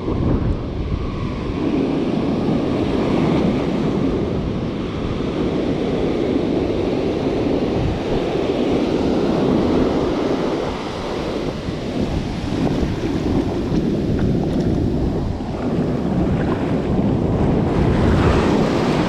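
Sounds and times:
ocean surf breaking on beach: 0.0s - 19.0s
wind buffeting microphone: 0.0s - 19.0s.

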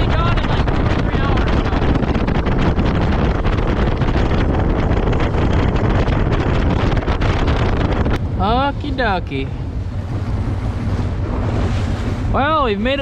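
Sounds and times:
boat motor: 0.0s - 13.0s
hull knocking on waves: 0.0s - 13.0s
wind buffeting microphone: 0.0s - 13.0s.

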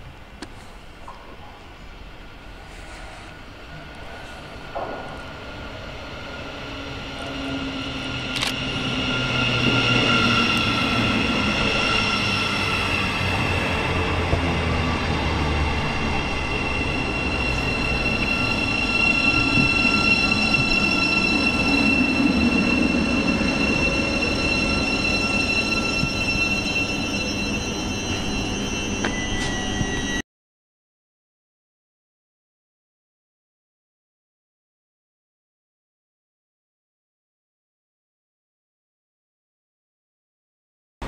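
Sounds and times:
train wheels rumbling: 0.6s - 30.2s
train brakes squealing: 2.5s - 30.2s.

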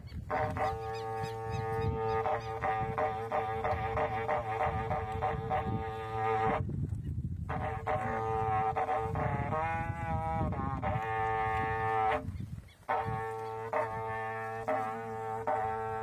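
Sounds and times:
cattle horn trumpet blown: 0.0s - 6.8s, 7.4s - 16.0s.

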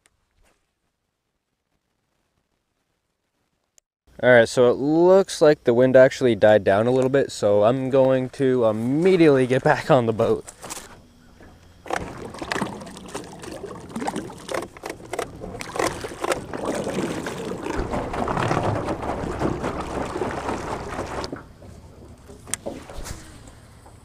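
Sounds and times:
water churning around hull: 10.0s - 24.0s
knocks and rattles in boat: 11.3s - 24.0s.

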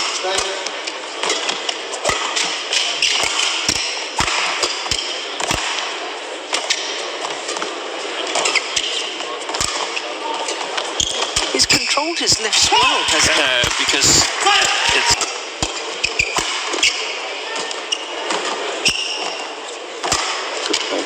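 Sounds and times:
crowd background noise: 0.0s - 21.0s
racket hitting shuttlecock: 20.0s - 20.9s.

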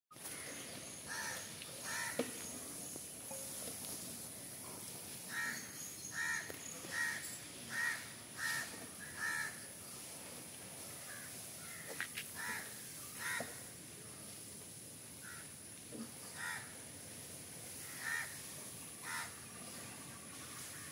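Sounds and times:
crows cawing: 1.1s - 2.3s, 5.3s - 9.6s, 11.1s - 13.7s, 15.2s - 15.5s, 16.3s - 16.8s, 17.8s - 19.4s.

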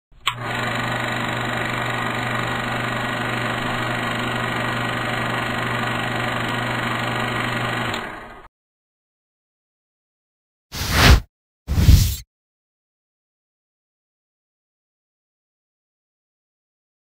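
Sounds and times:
film projector whirring: 0.2s - 8.5s.

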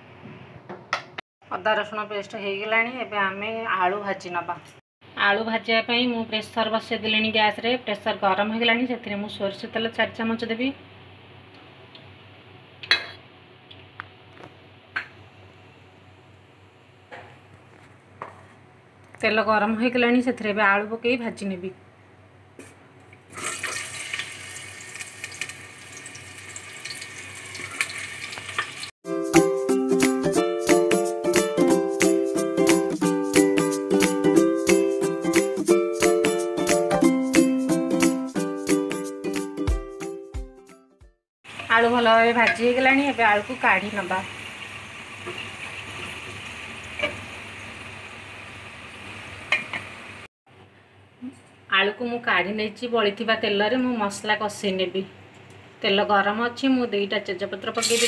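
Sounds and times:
potatoes sizzling in hot oil: 23.4s - 28.9s, 41.5s - 50.2s, 57.8s - 58.0s.

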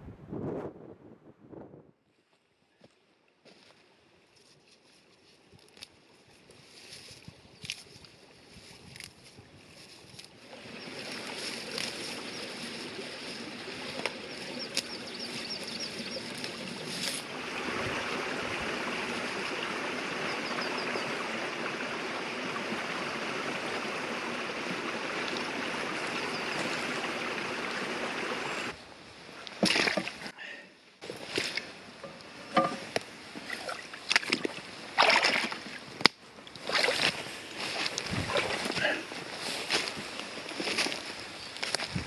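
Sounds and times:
dry grass rustling: 3.4s - 17.4s, 36.8s - 42.0s
running water rushing: 9.8s - 30.4s, 31.0s - 41.4s.

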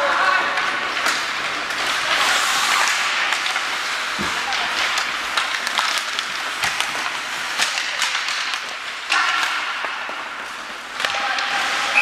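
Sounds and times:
hockey sticks and puck clacking: 0.0s - 12.0s
skates scraping on ice: 0.0s - 12.0s.

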